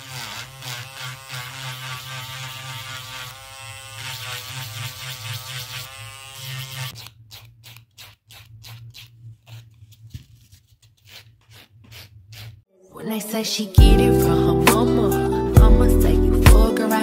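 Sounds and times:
electric nail drill buzzing: 0.0 - 7.5.

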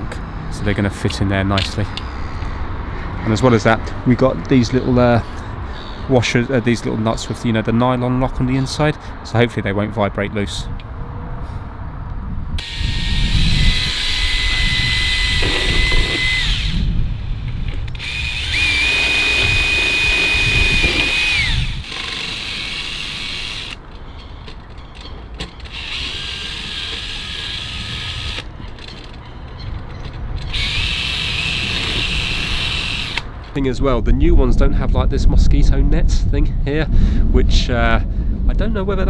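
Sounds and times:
cordless drill whine: 12.6 - 16.9, 17.9 - 23.8, 25.6 - 28.5, 30.5 - 33.3.

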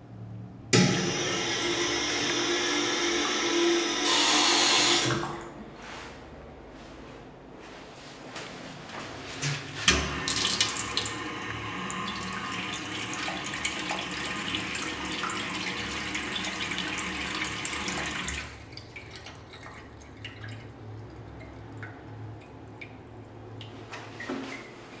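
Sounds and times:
tap water running into steel basin: 0.8 - 5.4, 9.9 - 23.8.

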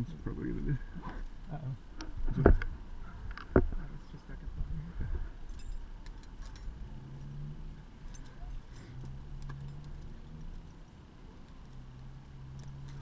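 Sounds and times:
carabiners clicking and clinking: 5.4 - 13.0.

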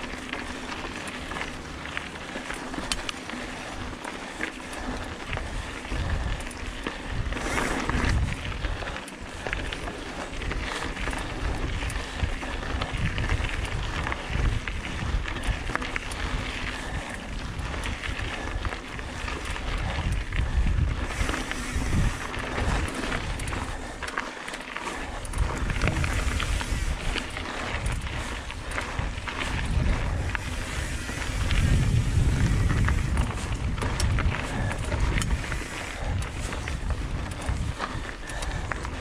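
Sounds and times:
wind buffeting microphone: 0.0 - 24.2, 24.8 - 39.0
tyres rolling over dirt and rock: 0.0 - 39.0
bike knocks and rattles: 12.8 - 39.0.

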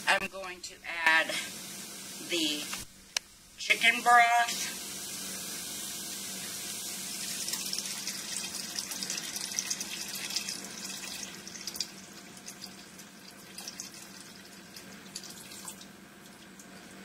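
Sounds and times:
broth pouring into a hot pot: 4.6 - 17.0.

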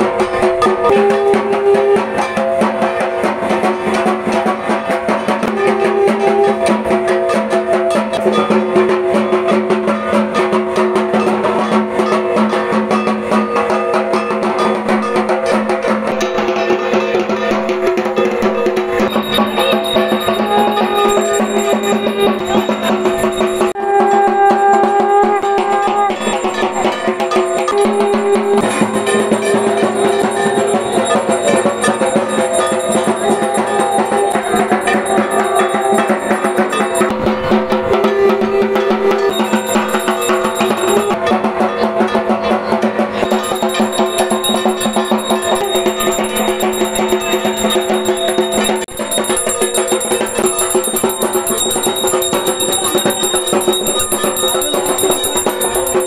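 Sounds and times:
fast drumming and percussion: 0.0 - 56.0
sustained pitched tones: 18.8 - 23.8.

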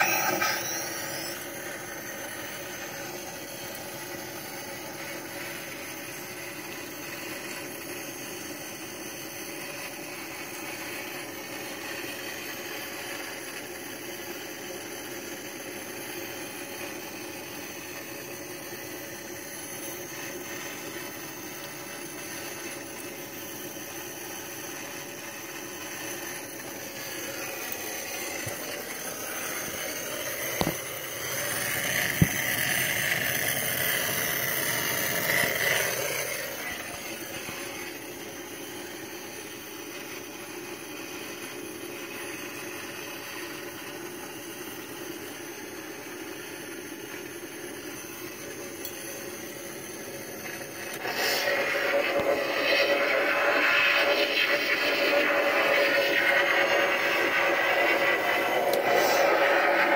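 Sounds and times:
toy electronic hum: 0.0 - 7.4.

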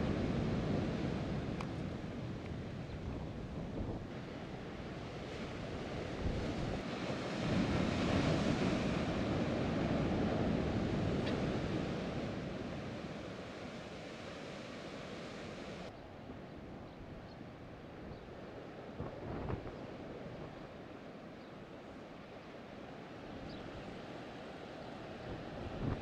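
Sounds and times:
surf breaking on rocky shore: 4.2 - 15.9.

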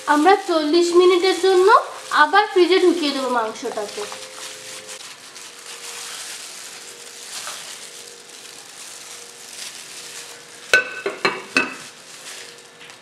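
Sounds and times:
wet squishing of hand kneading: 3.8 - 10.3.

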